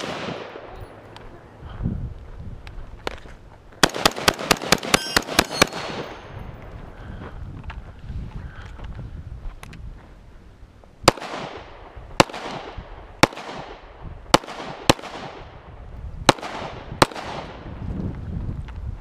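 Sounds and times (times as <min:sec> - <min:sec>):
gunshots with echo: 0:03.8 - 0:06.4.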